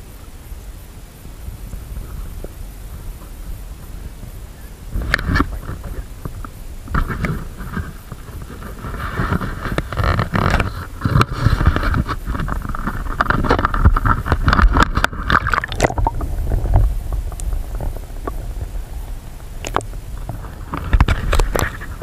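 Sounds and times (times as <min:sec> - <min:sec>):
wind rumble on microphone: 0:00.0 - 0:22.0
fish thrashing and splashing: 0:15.1 - 0:16.6.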